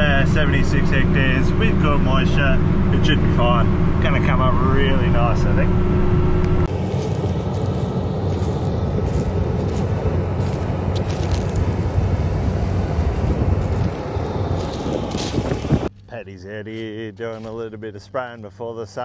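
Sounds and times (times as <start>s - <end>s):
farm machinery engine running: 0.0s - 15.9s
rushing noise: 2.2s - 15.9s.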